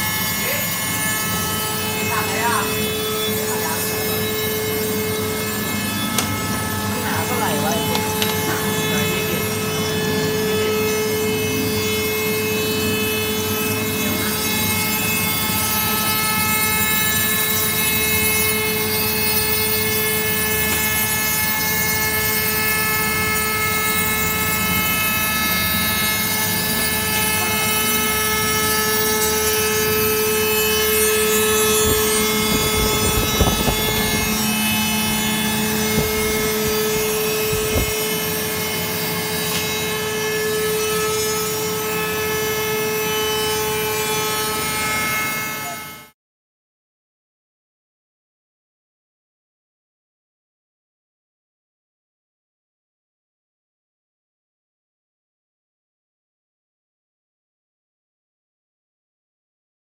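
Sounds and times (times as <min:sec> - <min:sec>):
spindle motor whining: 0:00.0 - 0:43.0.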